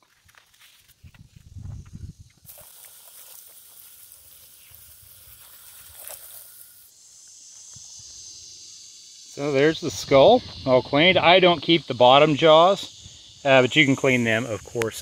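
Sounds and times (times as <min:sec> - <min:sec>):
hose spray splattering on concrete: 0:02.4 - 0:06.9.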